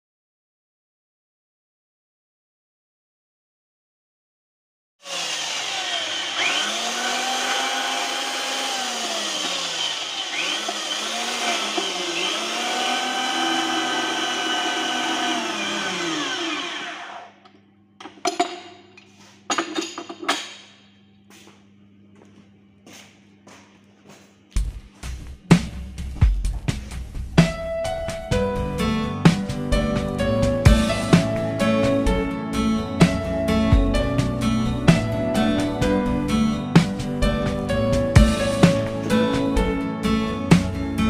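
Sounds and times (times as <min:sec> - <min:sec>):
pipe-threading machine motor whine: 0:05.1 - 0:17.6
metallic knocks and clatters: 0:18.0 - 0:20.8.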